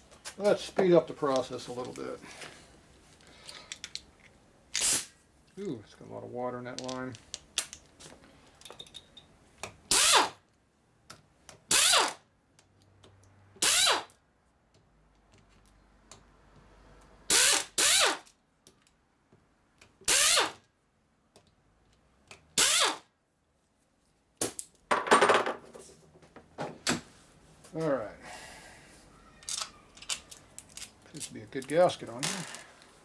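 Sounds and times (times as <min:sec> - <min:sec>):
air ratchet bursts: 0:04.8 - 0:05.1, 0:09.9 - 0:10.4, 0:11.7 - 0:12.2, 0:13.6 - 0:14.1, 0:17.3 - 0:18.3, 0:20.1 - 0:20.6, 0:22.6 - 0:23.1.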